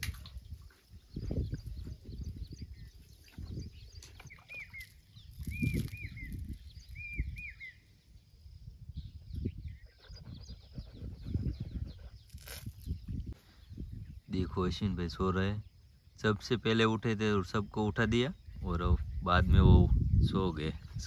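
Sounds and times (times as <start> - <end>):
high bird chirps: 0.5 - 8.0
bird whistling: 4.3 - 7.8.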